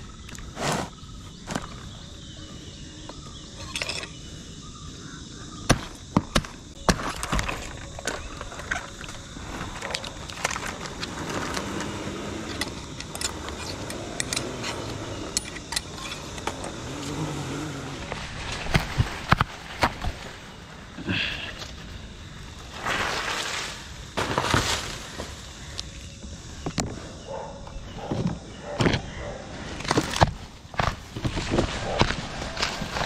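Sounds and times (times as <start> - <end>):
rustling fronds: 6.6 - 26.6, 29.6 - 33.0.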